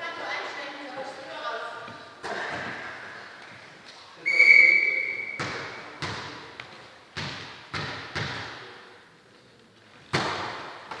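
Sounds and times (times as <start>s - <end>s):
referee's whistle: 4.2s - 5.4s
volleyball bouncing on hall floor: 5.1s - 8.9s, 10.0s - 11.0s
volleyball hit: 5.3s - 6.4s, 7.2s - 8.8s, 10.1s - 11.0s.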